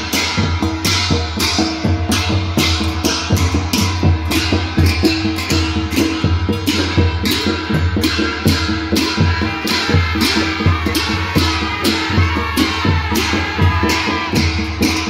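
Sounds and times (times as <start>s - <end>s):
steady drum beat: 0.0s - 15.0s.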